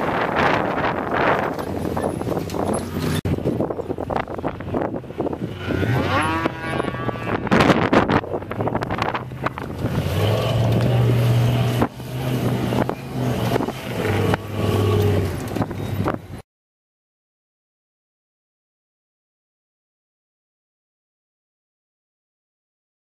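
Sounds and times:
racing car engine revving: 4.8s - 15.7s.

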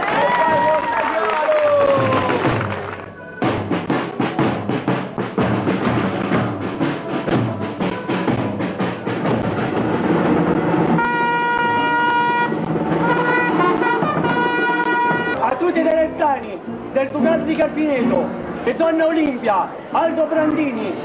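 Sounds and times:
drums beating fast rhythm: 0.1s - 19.4s
trumpets holding a note: 11.0s - 15.5s.

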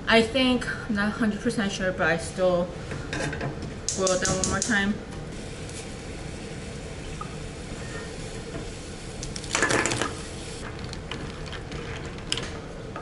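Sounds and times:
steady hiss and hum: 0.0s - 13.0s.

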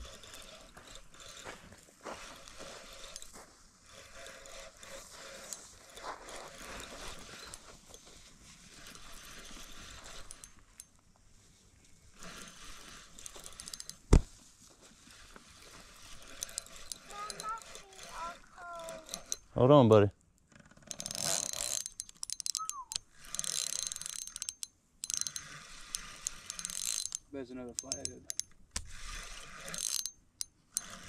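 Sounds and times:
scattered clicks: 20.2s - 29.0s.

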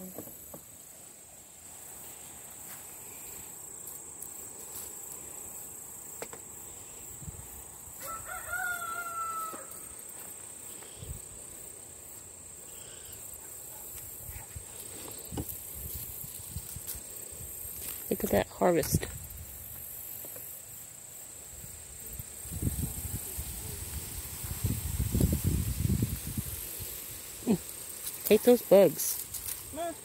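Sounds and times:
garden plants rustling: 0.0s - 12.7s, 13.3s - 20.6s, 21.5s - 30.0s
high insect buzz: 0.0s - 30.0s
rooster crowing: 8.0s - 10.0s.

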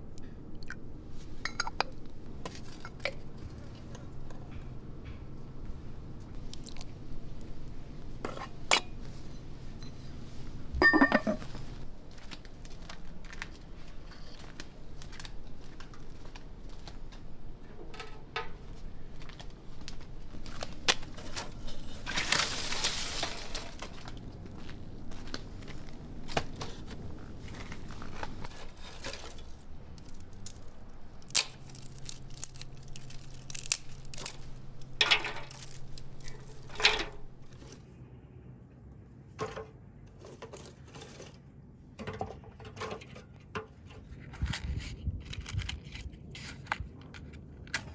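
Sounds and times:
kitchenware clink: 10.8s - 11.5s
dry twigs rustling: 11.5s - 17.3s, 18.7s - 37.8s
twigs snapping: 27.5s - 37.6s.

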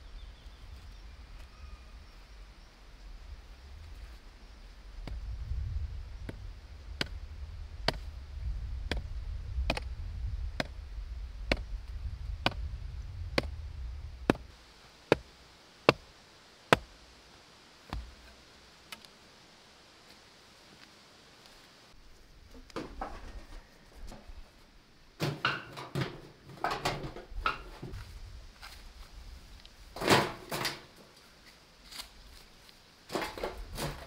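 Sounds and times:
low rumble: 4.8s - 14.5s.

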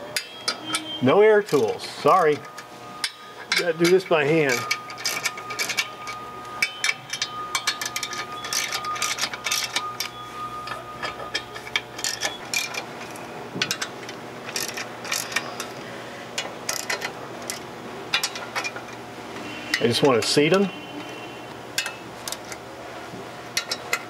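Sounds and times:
ratchet wrench clicking: 2.5s - 5.9s, 6.6s - 10.2s, 11.0s - 13.9s, 14.5s - 15.8s, 16.4s - 18.8s, 21.8s - 22.6s, 23.6s - 24.0s.

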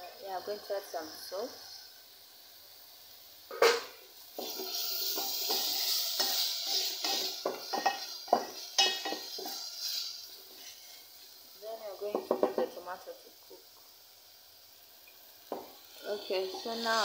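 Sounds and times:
food sizzling: 0.0s - 17.0s
spoon scraping pan: 4.4s - 11.2s.

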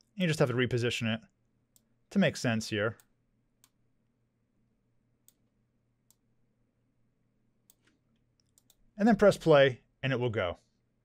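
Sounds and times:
computer mouse clicks: 3.0s - 3.8s, 5.2s - 5.5s, 7.7s - 8.8s.

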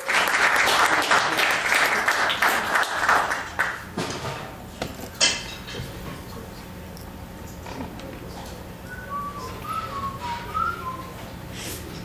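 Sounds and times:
audience applauding: 0.0s - 3.9s.

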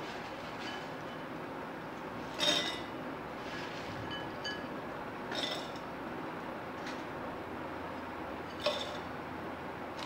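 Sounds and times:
kitchenware clinking: 2.4s - 2.9s, 5.3s - 5.8s, 8.5s - 9.1s.

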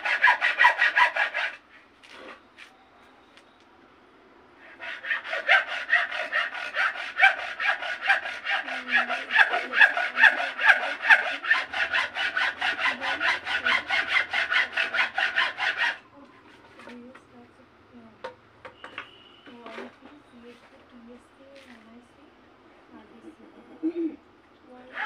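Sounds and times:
hacksaw cutting bamboo: 0.0s - 1.6s, 4.8s - 16.0s.

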